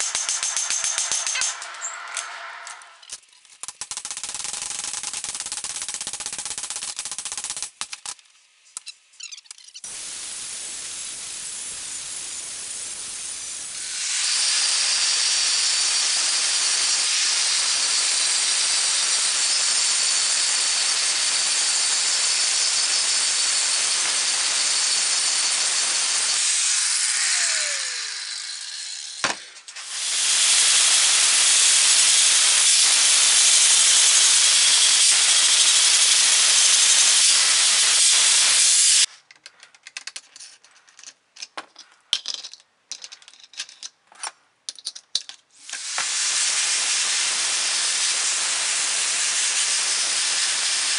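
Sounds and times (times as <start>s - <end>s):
angle grinder grinding steel: 0.0s - 3.1s, 13.6s - 39.1s.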